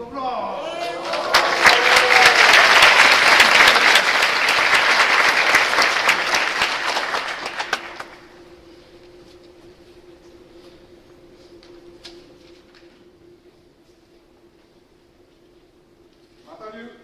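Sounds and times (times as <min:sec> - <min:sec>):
audience applauding: 0:00.7 - 0:08.3.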